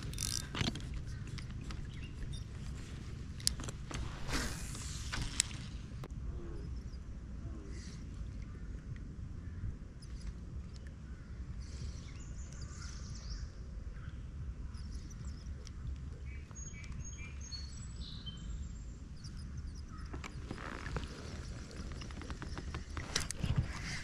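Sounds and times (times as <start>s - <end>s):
bird chirping: 0.0s - 3.6s, 11.6s - 24.0s
steady low rumble: 0.0s - 24.0s.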